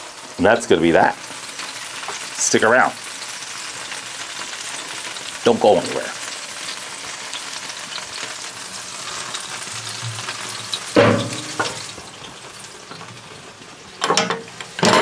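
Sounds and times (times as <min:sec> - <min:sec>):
meat sizzling on a grill: 0:00.0 - 0:15.0
loud metal clank: 0:10.9 - 0:11.9.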